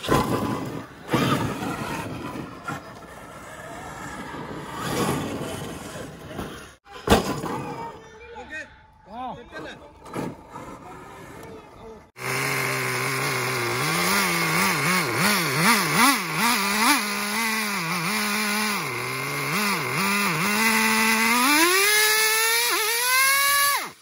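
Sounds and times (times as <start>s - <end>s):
small nitro engine revving: 0.0s - 6.8s, 12.1s - 24.0s.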